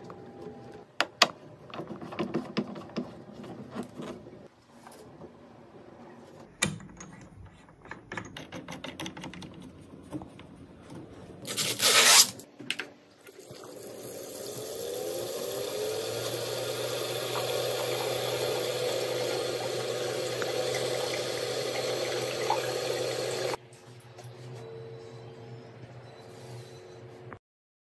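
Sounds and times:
liquid pouring into reservoir: 13.2 - 23.6.

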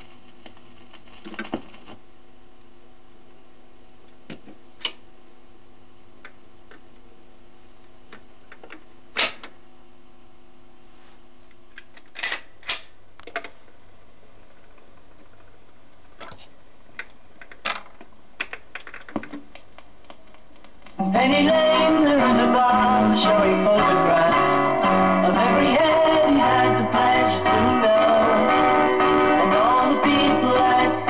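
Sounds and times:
record changer clicks and clunks: 4.1 - 5.0
music with guitar and singing: 20.9 - 31.0.

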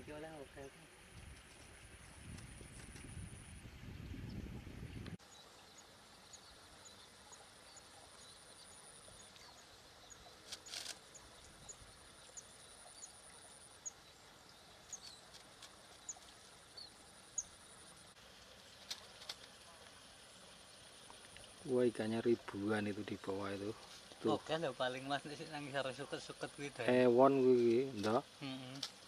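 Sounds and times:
small birds chirping: 0.4 - 17.9.

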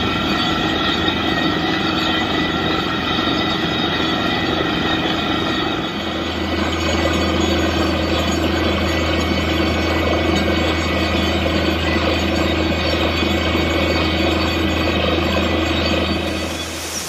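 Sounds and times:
drilling rig engine running: 0.0 - 17.0
rush of air blowing water: 16.1 - 17.0.

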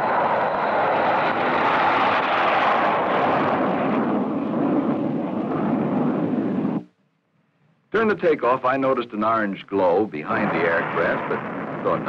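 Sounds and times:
jet engine roar: 0.0 - 6.8, 10.0 - 12.0.

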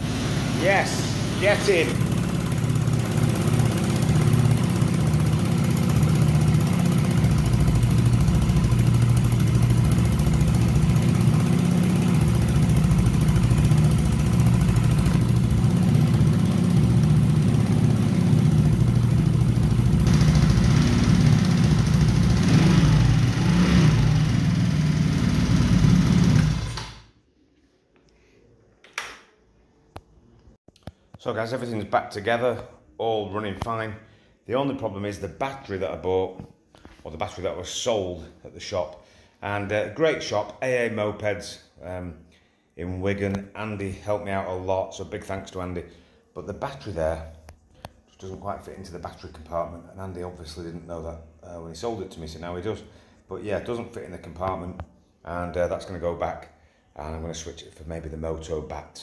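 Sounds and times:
scooter engine idling: 0.0 - 27.0.

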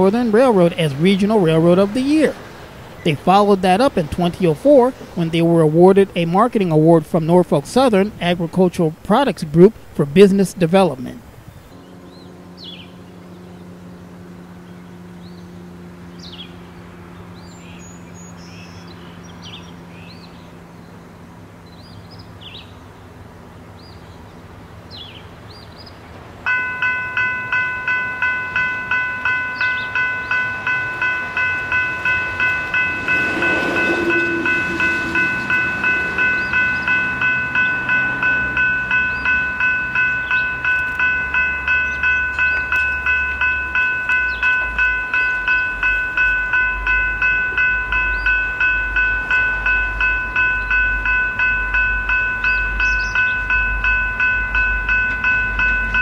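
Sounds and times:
railroad crossing bell ringing: 0.0 - 13.0, 26.4 - 56.0
birds chirping: 0.0 - 56.0
deep train rumble: 0.0 - 56.0.

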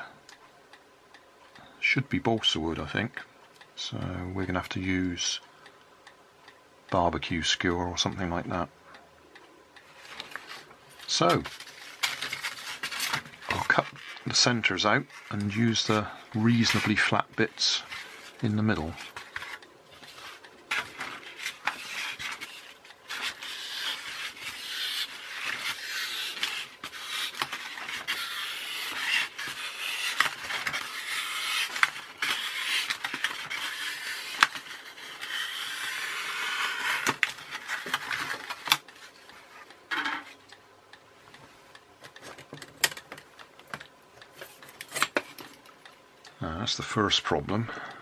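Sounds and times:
knife scraping through styrofoam: 21.2 - 38.1.

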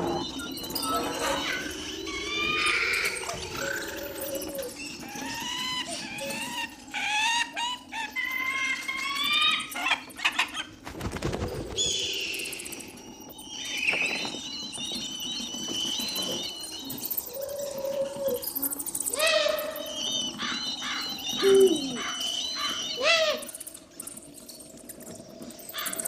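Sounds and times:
birds chirping: 0.0 - 10.8, 11.6 - 26.0.

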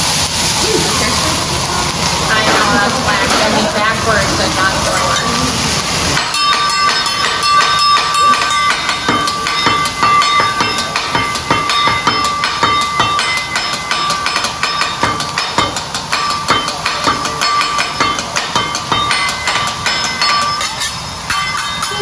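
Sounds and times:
food sizzling: 0.0 - 22.0
steel spatulas clacking on griddle: 6.1 - 22.0.

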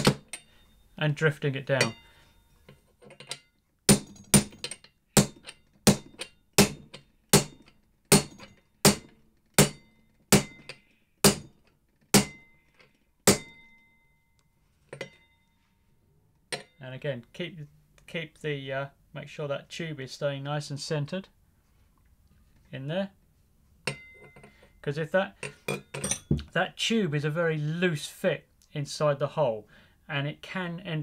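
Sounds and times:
hammer striking steel socket: 3.0 - 12.6, 23.8 - 24.5.

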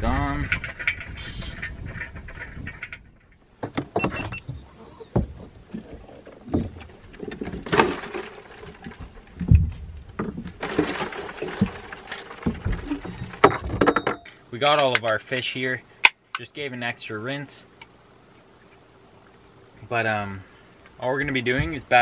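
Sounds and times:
water swishing: 4.4 - 13.4.

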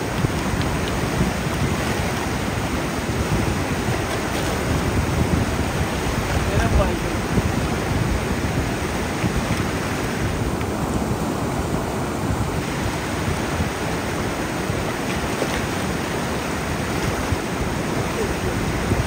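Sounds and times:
river rushing over rocks: 0.0 - 19.0.

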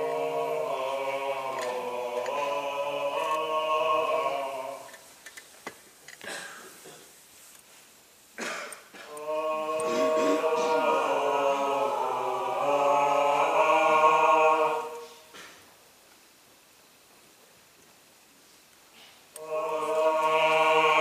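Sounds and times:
voices singing a held chord: 0.0 - 5.0, 9.0 - 15.4, 19.4 - 21.0.

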